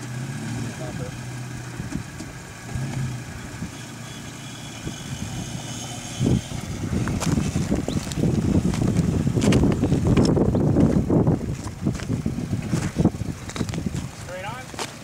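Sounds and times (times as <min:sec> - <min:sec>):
pickup engine idling: 0:00.0 - 0:15.0
rough crackling and rumbling: 0:00.0 - 0:15.0.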